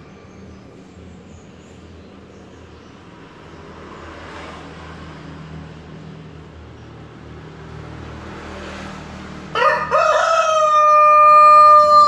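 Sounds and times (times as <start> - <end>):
rooster crowing: 9.5 - 12.0.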